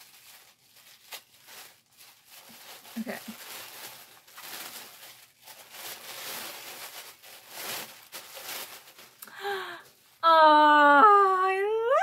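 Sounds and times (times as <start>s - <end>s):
paper rustling and crinkling: 0.0s - 9.2s
woman's voice murmuring: 10.2s - 12.0s.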